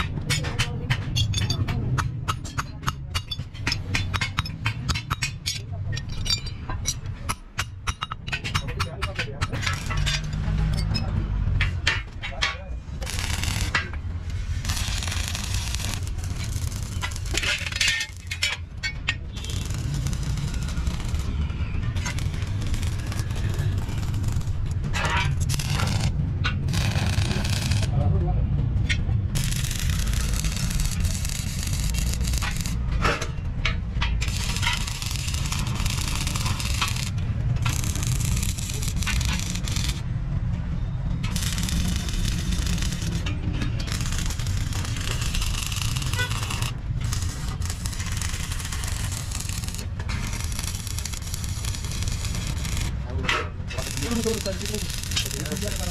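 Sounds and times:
steel pieces clinking: 0.0 - 27.9, 29.4 - 40.1, 41.2 - 55.9
welding arc crackling: 8.8 - 10.4, 13.0 - 28.0, 29.4 - 32.9, 34.1 - 40.1, 41.2 - 55.9.

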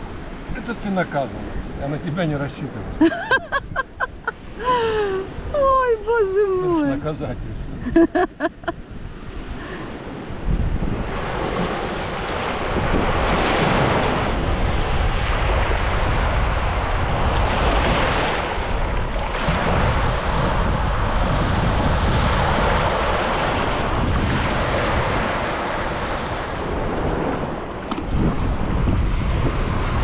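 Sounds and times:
wind buffeting microphone: 2.8 - 30.0
surf breaking on beach: 9.6 - 30.0.

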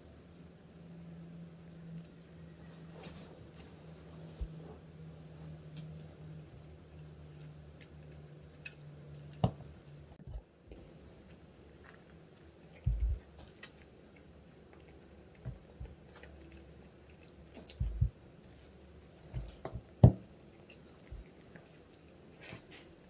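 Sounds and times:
chewing with small crunches: 1.4 - 23.0
dull thumps: 12.9 - 13.2.

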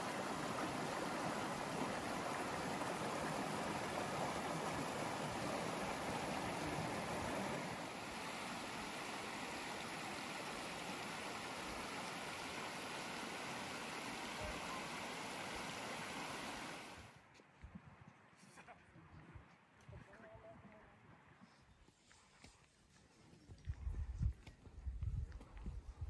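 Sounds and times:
mountain stream flowing: 0.0 - 17.2.

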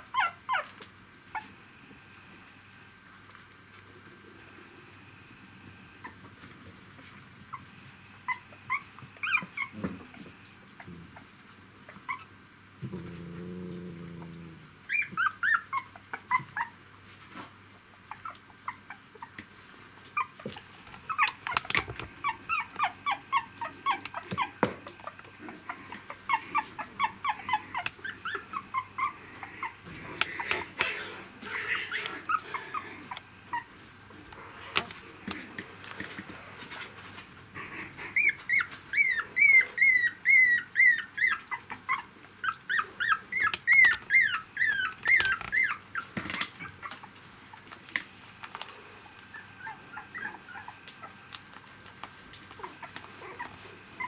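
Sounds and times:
puppies whimpering and squeaking: 0.0 - 1.6, 7.5 - 12.4, 14.8 - 16.8, 18.0 - 19.4, 20.1 - 33.9, 37.6 - 47.7, 49.0 - 51.2, 52.4 - 54.0.

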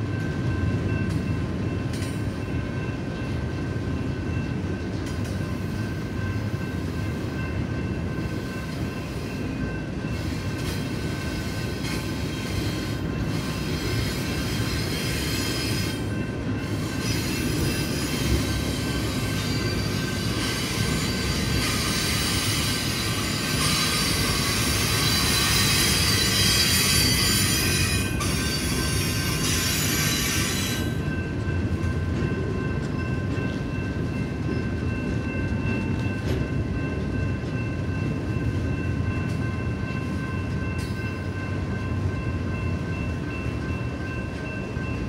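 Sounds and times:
rolling train rumble: 0.0 - 45.0
train wheels squealing: 5.0 - 31.5.

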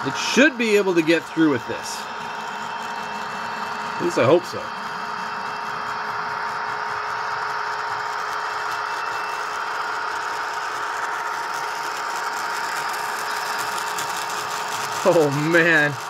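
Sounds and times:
model locomotive whine: 0.0 - 16.0
wheels rattling on track: 10.8 - 16.0.

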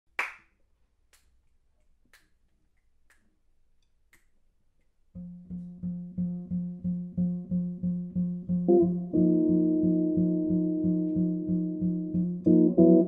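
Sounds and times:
double bass: 5.2 - 13.0
electric guitar: 5.2 - 13.0.

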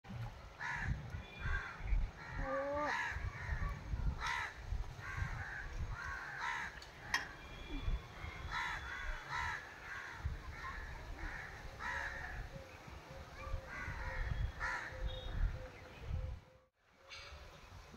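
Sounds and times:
crows cawing: 0.6 - 7.2, 8.5 - 12.5, 13.7 - 15.0.

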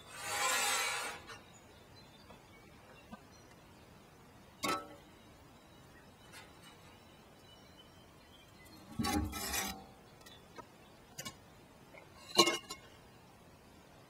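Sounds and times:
scraping rustle: 0.0 - 1.4, 8.8 - 9.9.

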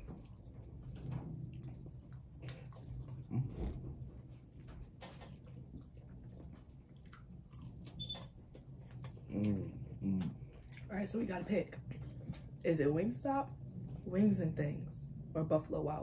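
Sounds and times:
people chewing food: 0.0 - 12.6.

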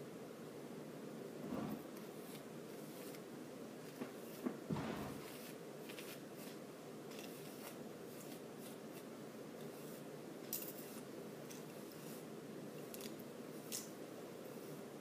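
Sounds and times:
soft knock: 4.0 - 5.3.

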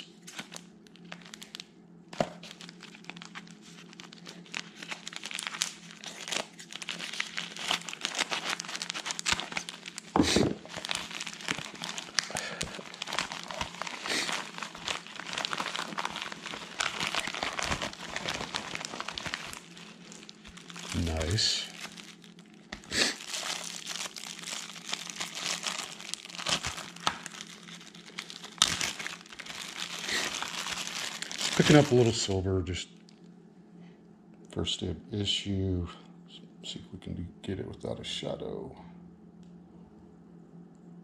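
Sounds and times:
packing material crinkling: 0.0 - 32.4.

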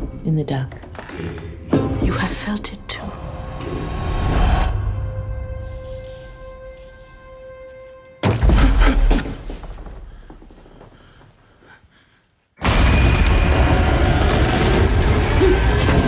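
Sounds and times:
loud boom: 12.6 - 16.0.

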